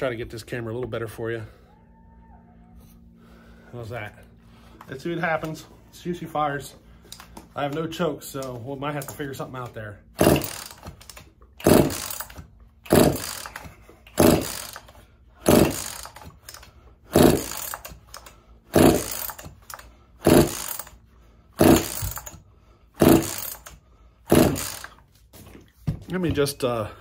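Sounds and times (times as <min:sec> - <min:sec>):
chainsaw starter rope pulls: 0:10.2 - 0:25.1.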